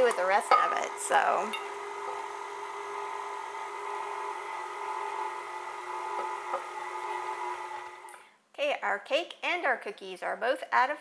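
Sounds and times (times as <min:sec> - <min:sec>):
stand mixer motor whining: 0:00.9 - 0:08.1.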